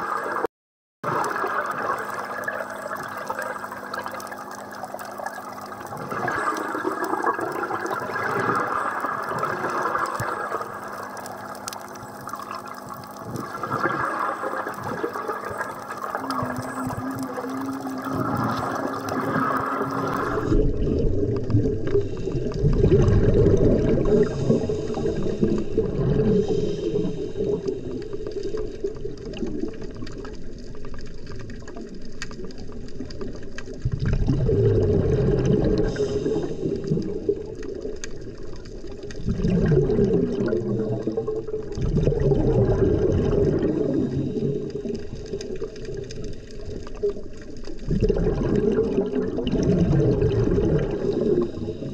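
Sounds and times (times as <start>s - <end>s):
deep rumbling water: 0.0s - 51.9s
scuba regulator breathing bubbles: 6.0s - 29.5s, 33.9s - 51.9s.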